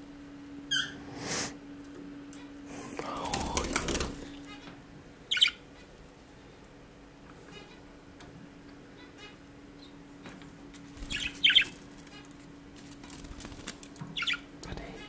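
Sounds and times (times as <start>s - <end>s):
budgerigar squawk: 5.3s - 5.6s.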